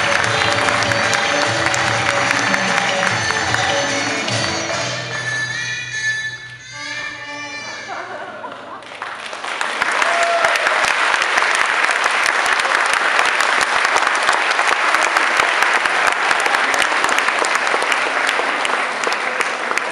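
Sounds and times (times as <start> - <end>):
audience applauding: 0.0 - 4.8, 8.8 - 19.9.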